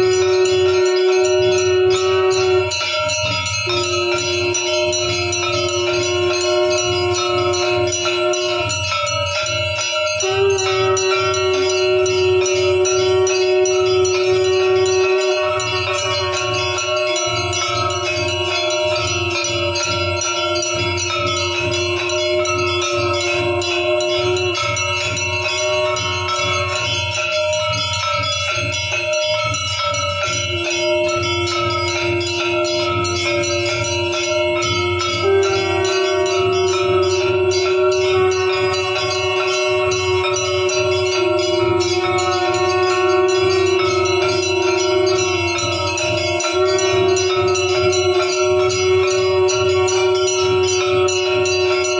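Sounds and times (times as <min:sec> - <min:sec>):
bells clanging rapidly: 0:00.0 - 0:51.9.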